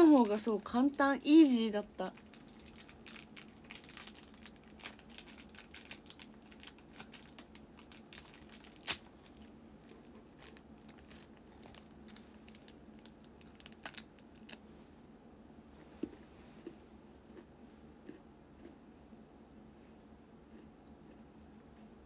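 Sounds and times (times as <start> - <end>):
plastic bag crinkling: 0.0 - 14.6.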